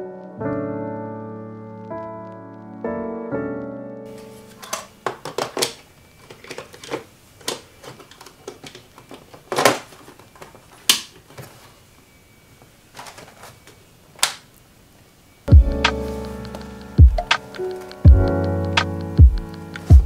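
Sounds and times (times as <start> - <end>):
plastic clicks and knocks: 4.6 - 11.3.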